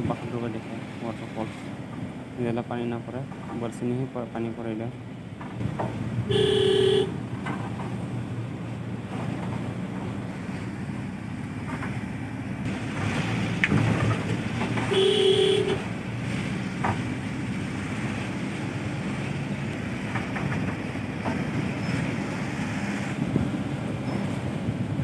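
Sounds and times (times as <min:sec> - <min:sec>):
vehicle engine and road rumble: 0:00.0 - 0:25.0
knocks and rattles: 0:03.2 - 0:03.8, 0:05.3 - 0:06.3, 0:07.1 - 0:10.8, 0:11.4 - 0:22.4
horn-like steady tone: 0:06.3 - 0:07.1, 0:14.9 - 0:15.8.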